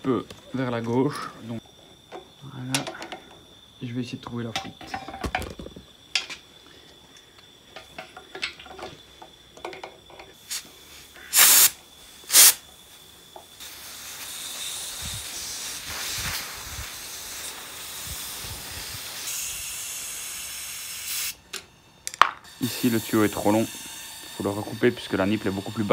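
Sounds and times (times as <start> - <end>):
compressed air hissing: 10.2 - 21.8, 22.4 - 25.9
loud air blasts: 10.4 - 12.6, 13.6 - 21.4.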